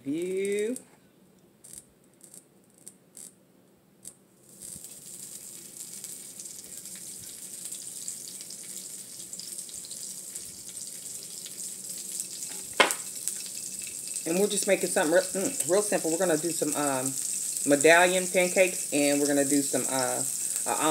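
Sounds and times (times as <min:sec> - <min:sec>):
butter sizzling on a griddle: 0:04.4 - 0:20.9
sharp knock: 0:12.8 - 0:13.0.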